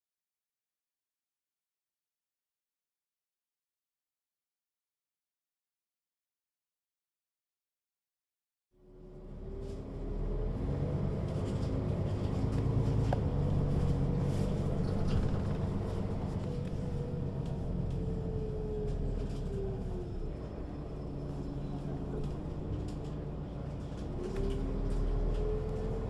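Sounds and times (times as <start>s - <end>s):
bus engine droning: 8.8s - 26.0s.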